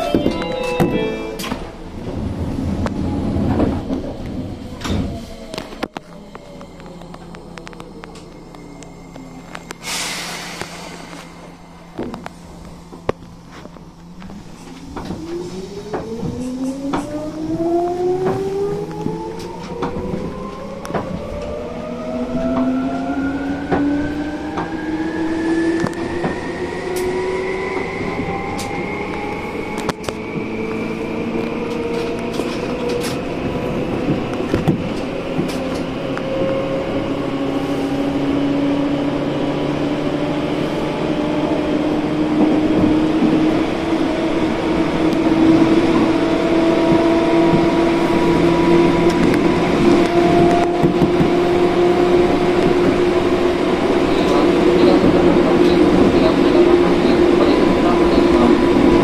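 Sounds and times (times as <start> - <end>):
train wheel and track clicks: 12.0 - 21.6, 25.4 - 36.8, 42.3 - 59.0.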